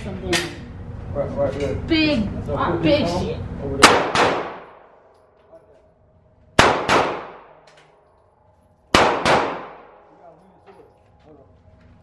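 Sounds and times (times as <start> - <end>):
echoing gunshots: 3.8 - 5.0, 6.6 - 7.7, 8.9 - 10.1.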